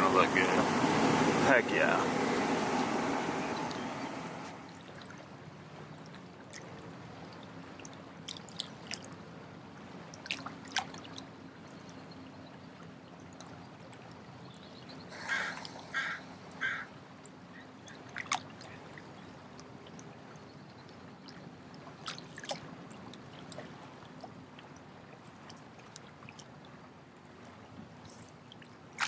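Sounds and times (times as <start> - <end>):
bird calling: 0.0 - 4.5, 15.0 - 18.9
low steady hum: 0.0 - 8.1
water lapping and trickling: 0.0 - 29.0.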